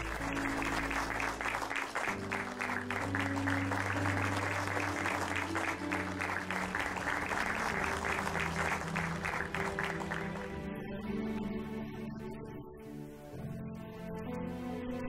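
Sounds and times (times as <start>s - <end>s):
audience applauding: 0.0s - 10.8s
background music with low notes: 0.0s - 15.0s.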